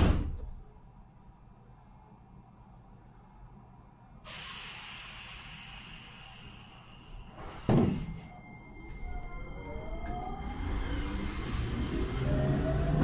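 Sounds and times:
air brakes hissing: 0:04.2 - 0:08.4
faint falling whistle: 0:05.8 - 0:11.1.

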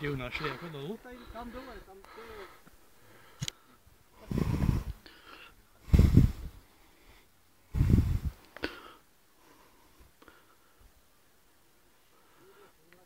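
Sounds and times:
air buffeting microphone: 0:04.2 - 0:05.0, 0:05.8 - 0:06.6, 0:07.7 - 0:08.4.

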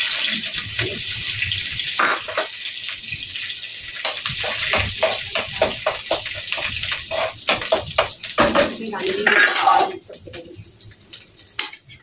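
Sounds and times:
spices sizzling in hot oil: 0:00.0 - 0:12.0
metal spatula scraping pan: 0:04.0 - 0:07.9, 0:08.8 - 0:10.0.

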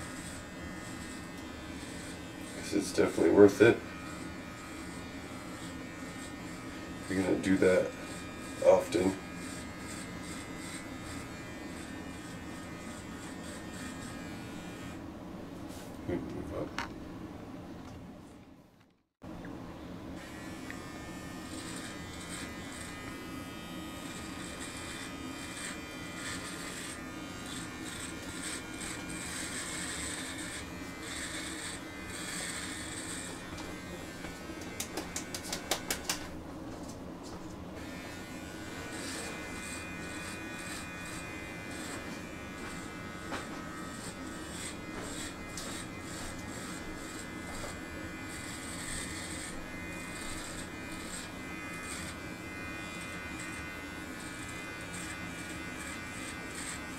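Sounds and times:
electric trimmer buzzing: 0:00.0 - 0:15.0, 0:20.2 - 0:36.4, 0:37.8 - 0:56.9.

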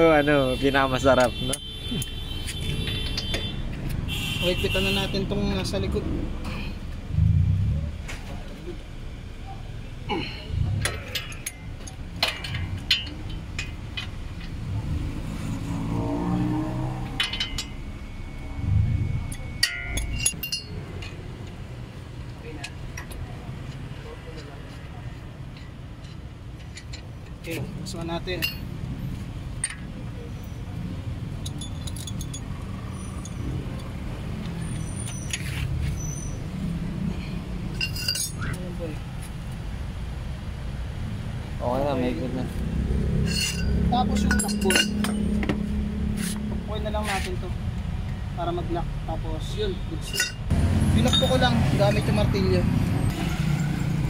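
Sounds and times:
low mechanical rumble: 0:06.1 - 0:15.7, 0:17.1 - 0:22.4
ratchet clinking on metal: 0:10.7 - 0:14.6, 0:17.1 - 0:17.9, 0:19.3 - 0:21.2, 0:31.3 - 0:33.9, 0:37.7 - 0:38.6, 0:43.2 - 0:45.4, 0:50.0 - 0:51.5
low droning hum: 0:17.3 - 0:20.7.

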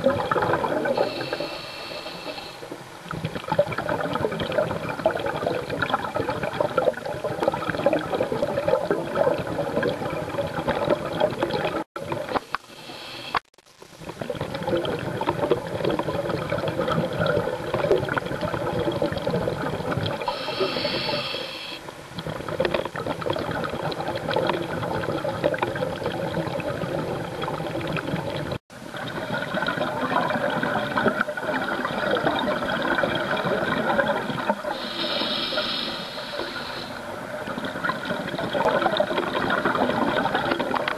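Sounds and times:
underwater bubbles gurgling: 0:00.0 - 0:40.9
breath hissing through regulator: 0:00.9 - 0:02.8, 0:12.5 - 0:13.4, 0:20.2 - 0:21.9, 0:34.7 - 0:37.1.

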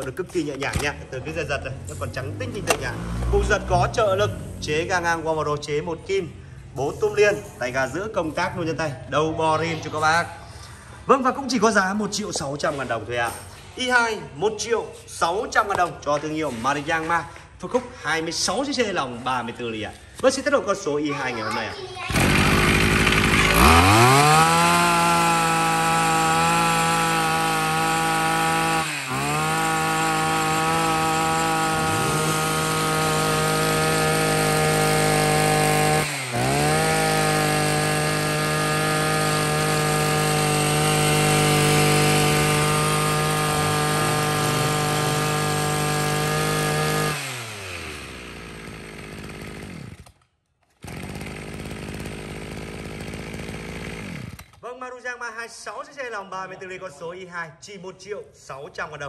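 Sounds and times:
brush cutter engine revving: 0:01.8 - 0:04.7, 0:22.1 - 0:50.2, 0:50.8 - 0:54.6.

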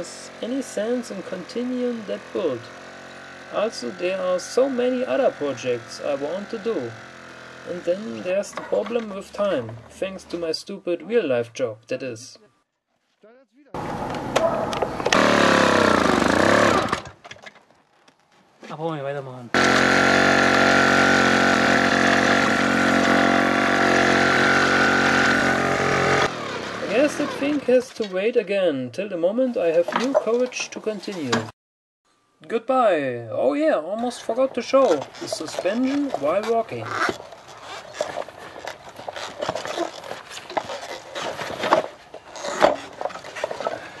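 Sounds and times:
small model engine running: 0:00.0 - 0:08.5, 0:15.0 - 0:17.0, 0:19.6 - 0:27.7
model track wheels clanking: 0:34.7 - 0:44.0.

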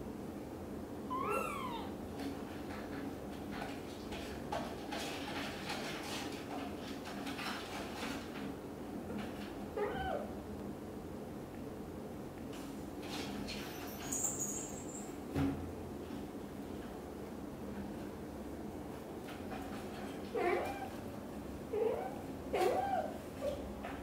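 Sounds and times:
kitten mewing: 0:01.1 - 0:02.0, 0:09.8 - 0:10.3, 0:21.7 - 0:23.2.

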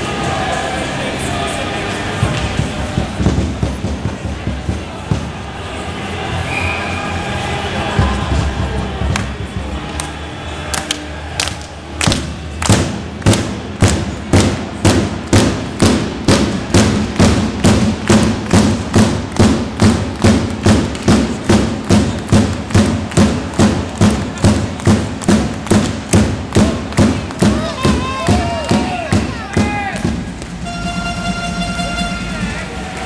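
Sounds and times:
arena crowd noise: 0:00.0 - 0:33.0
drum beaten in steady rhythm: 0:02.5 - 0:05.4.

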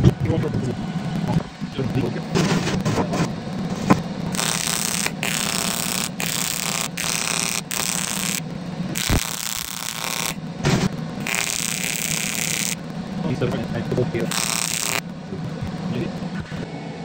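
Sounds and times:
welding arc buzzing hiss: 0:00.8 - 0:16.5.

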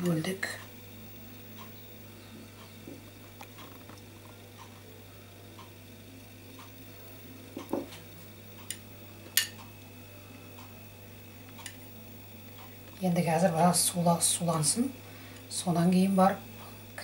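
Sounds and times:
low steady hum: 0:00.0 - 0:17.0
metal spoon tapping on plates: 0:09.4 - 0:09.6.

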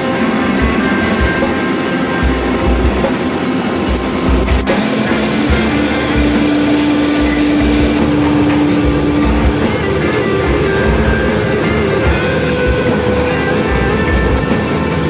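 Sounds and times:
rock music with guitar: 0:00.0 - 0:15.0.

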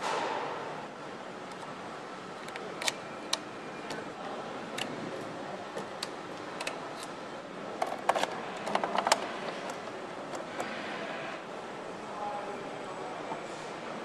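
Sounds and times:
clicks and taps of parts: 0:07.8 - 0:10.7.

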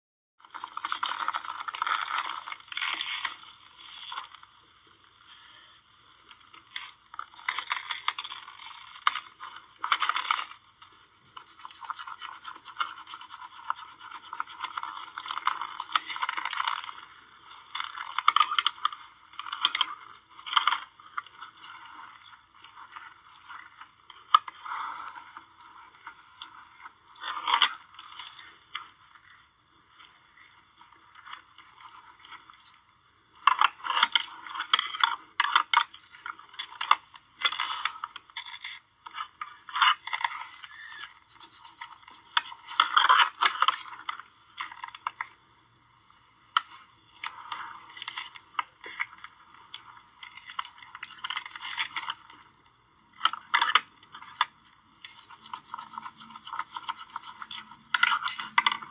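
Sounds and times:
deer scraping and clicking: 0:06.6 - 0:32.8, 0:33.4 - 0:45.3, 0:53.2 - 0:58.9.

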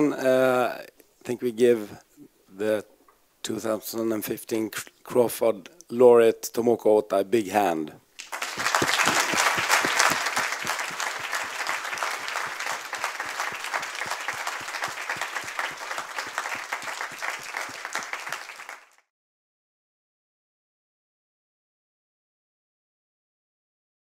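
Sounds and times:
audience applauding: 0:08.2 - 0:19.0.

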